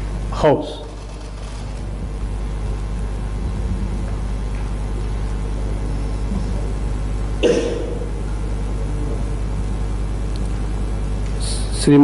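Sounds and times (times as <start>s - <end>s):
large hall room tone rumble: 0.0s - 12.0s.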